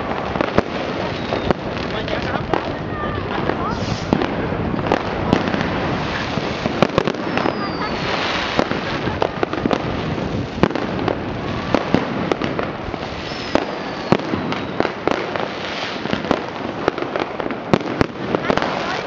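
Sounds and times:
firecracker crackle: 0.0s - 19.0s
firework bangs: 0.0s - 19.0s
falling firework whistle: 0.8s - 1.9s, 3.6s - 4.3s, 5.4s - 9.8s, 11.4s - 16.0s.

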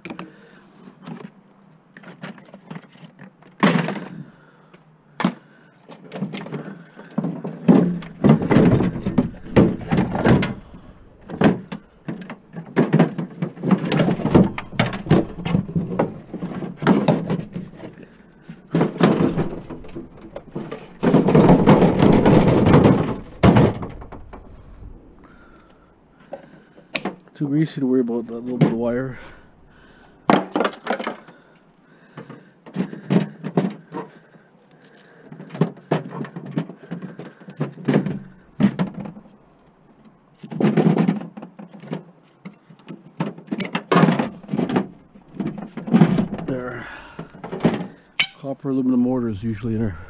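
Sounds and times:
appliance parts clunking and rattling: 5.2s - 27.2s, 28.4s - 31.5s, 35.3s - 39.3s, 42.8s - 48.5s, 49.4s - 50.0s
plastic scraping against metal: 6.2s - 25.8s, 43.5s - 48.1s.

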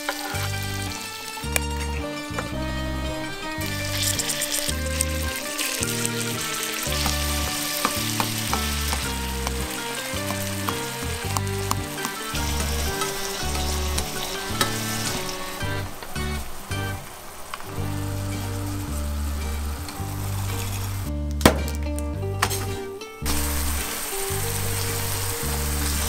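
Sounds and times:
food sizzling in oil: 0.0s - 2.4s, 3.2s - 17.0s, 23.3s - 26.0s.

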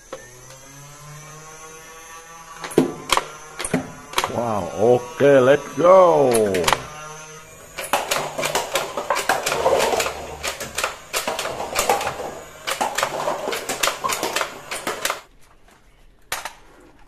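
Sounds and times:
dart blaster shots clicking: 2.6s - 4.4s, 6.3s - 6.9s
darts knocking over paper cups: 2.6s - 4.5s, 7.8s - 15.2s.

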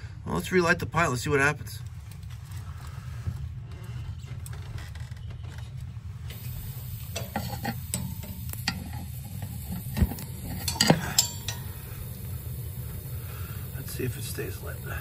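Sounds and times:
steady low hum: 1.8s - 15.0s
clicks and metallic clinks: 7.1s - 11.8s.

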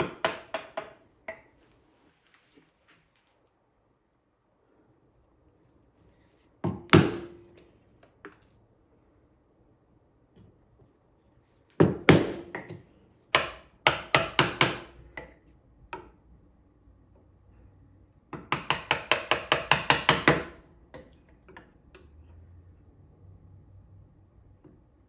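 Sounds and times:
mallet striking chisel: 0.0s - 1.5s, 6.6s - 7.6s, 11.8s - 16.1s, 18.3s - 21.6s.

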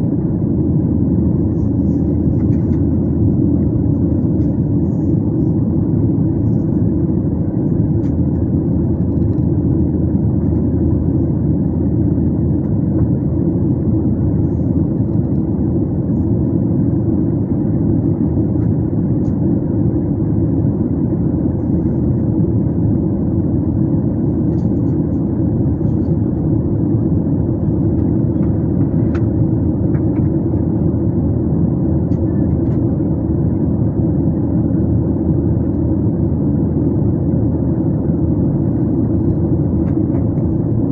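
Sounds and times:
airliner cabin engine drone: 0.0s - 40.9s.

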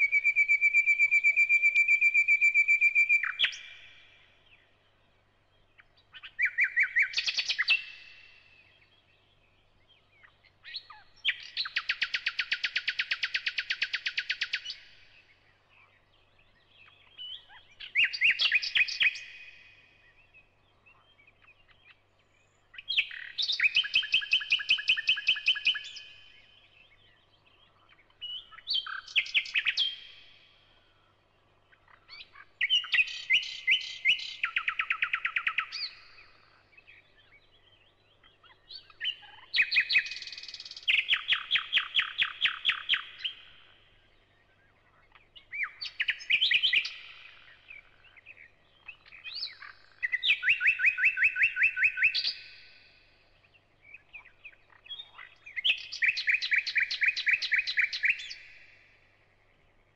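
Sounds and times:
songbird trilling: 0.0s - 4.0s, 5.8s - 8.3s, 16.8s - 19.7s, 22.7s - 26.6s, 27.7s - 30.7s, 31.7s - 43.8s, 44.8s - 58.8s.

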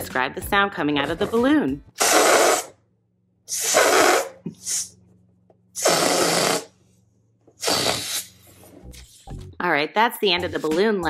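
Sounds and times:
air hissing out of balloon neck: 2.0s - 2.8s, 3.5s - 5.0s, 5.8s - 6.8s, 7.6s - 9.2s.

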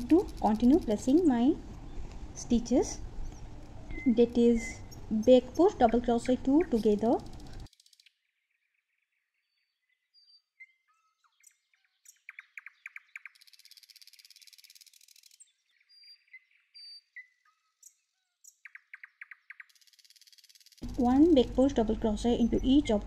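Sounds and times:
rapid bird trill: 0.0s - 1.5s, 3.0s - 8.2s, 10.2s - 23.0s
birds chirping and calling: 0.0s - 8.1s.

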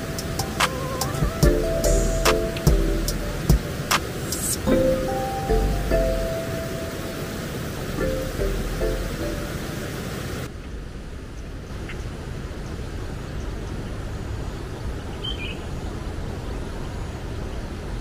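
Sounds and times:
steady low rumble: 0.0s - 11.4s
bird chirp: 15.1s - 15.8s.

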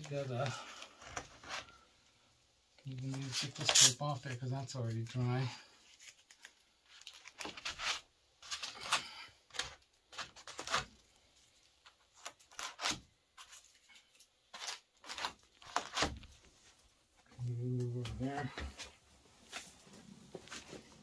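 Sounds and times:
tape ripping: 3.2s - 4.0s, 12.1s - 16.3s.

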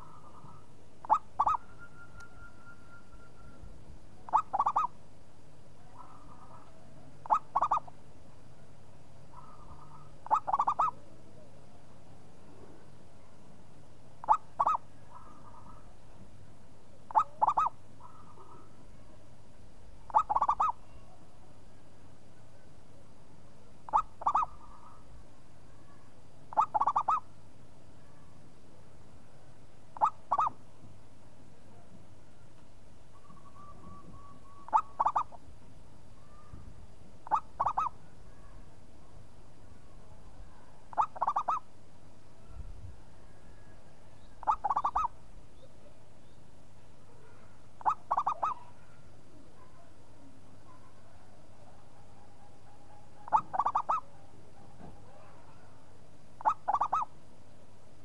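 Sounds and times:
dove cooing: 0.0s - 1.7s, 4.3s - 4.9s, 6.0s - 7.9s, 9.3s - 11.0s, 14.2s - 15.9s, 17.1s - 18.7s, 20.1s - 20.9s, 23.9s - 25.0s, 26.5s - 27.2s, 30.0s - 30.6s, 33.2s - 35.4s, 37.2s - 38.0s, 40.9s - 41.6s, 44.4s - 45.1s, 47.8s - 48.8s, 53.2s - 54.1s, 56.4s - 57.1s.

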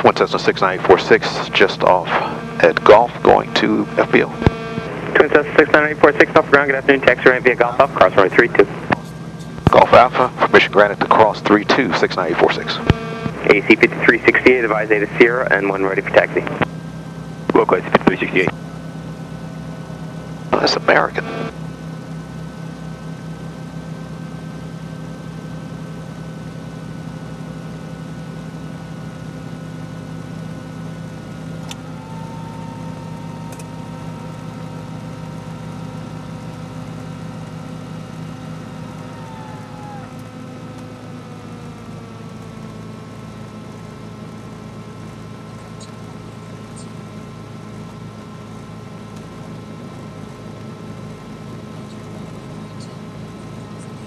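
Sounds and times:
aircraft piston engines running: 0.0s - 54.0s.

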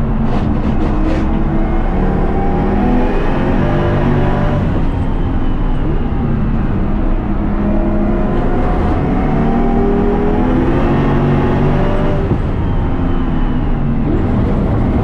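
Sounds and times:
car engine running hard: 0.0s - 15.0s.

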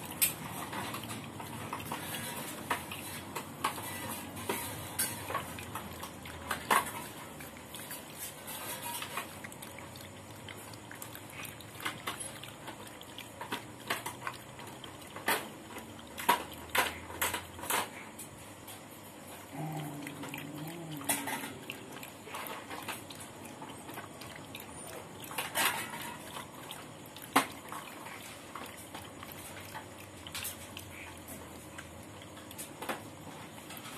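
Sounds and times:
dog lapping: 0.0s - 33.9s
clinks against metal pot: 20.9s - 23.0s.

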